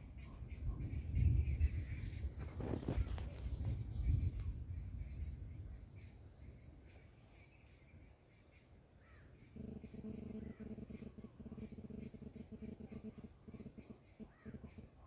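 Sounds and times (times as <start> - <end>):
high-pitched insect trill: 0.0 - 15.0
low pulsing buzz: 9.1 - 15.0.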